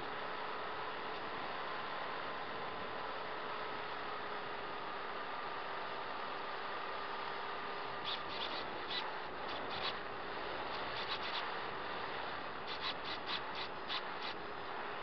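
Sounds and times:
faint electric motor hum: 0.0s - 15.0s
short scratchy ticks: 8.0s - 10.0s, 10.7s - 11.5s, 12.7s - 14.4s.

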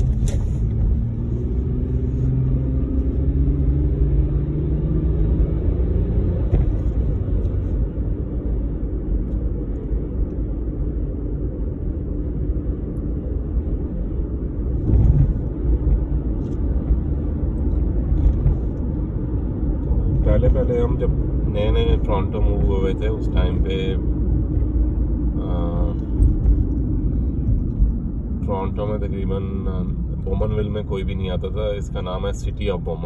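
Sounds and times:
car engine and tyre rumble: 0.0s - 33.0s
brief low thump: 6.4s - 7.2s, 14.8s - 15.5s.

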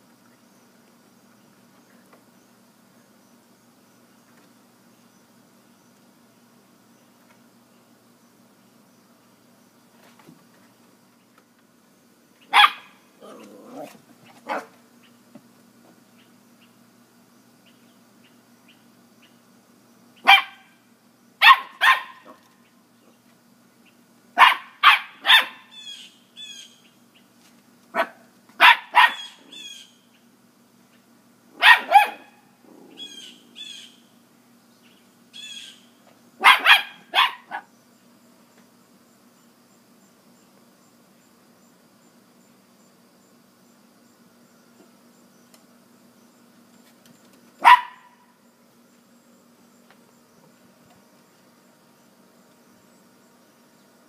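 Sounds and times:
dog barking sharply: 12.5s - 13.0s, 20.3s - 20.7s, 21.4s - 22.4s, 24.4s - 25.7s, 28.0s - 29.4s, 31.6s - 32.3s, 36.4s - 37.7s, 47.6s - 48.2s.

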